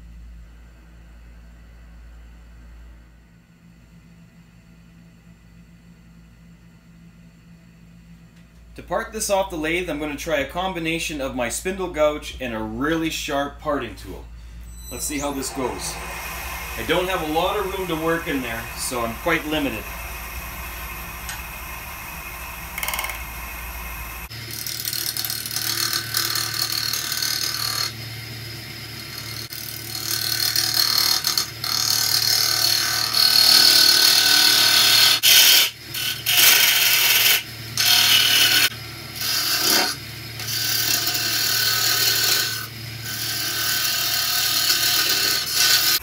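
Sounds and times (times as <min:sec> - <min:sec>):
wood lathe tool cutting: 0:14.8 - 0:28.0, 0:28.9 - 0:46.0.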